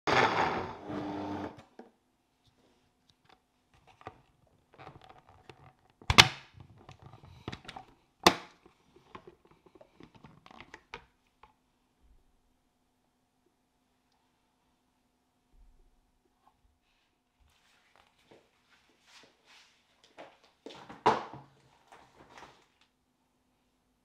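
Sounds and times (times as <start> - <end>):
blender motor running: 0.1 - 1.6.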